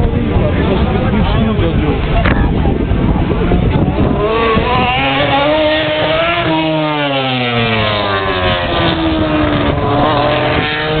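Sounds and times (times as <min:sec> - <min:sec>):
racing motorcycle engine high revs: 0:04.0 - 0:11.0.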